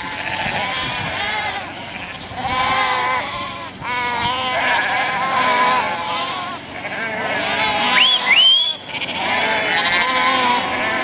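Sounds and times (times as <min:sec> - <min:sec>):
sheep bleating: 0:00.0 - 0:11.0.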